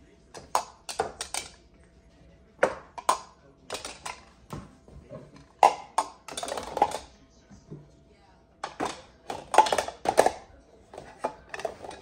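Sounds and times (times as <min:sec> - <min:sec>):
lids rattling: 0:00.4 - 0:01.6, 0:02.6 - 0:04.4, 0:05.2 - 0:07.1, 0:08.6 - 0:12.0.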